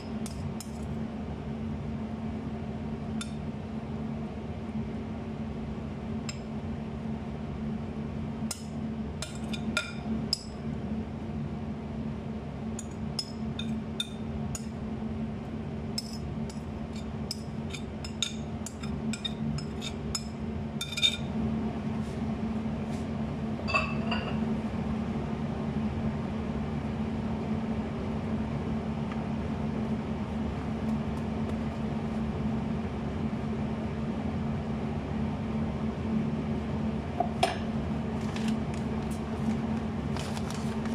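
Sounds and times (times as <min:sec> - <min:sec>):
steady low hum: 0:00.0 - 0:40.9
clinking against glass bowl: 0:23.7 - 0:24.4.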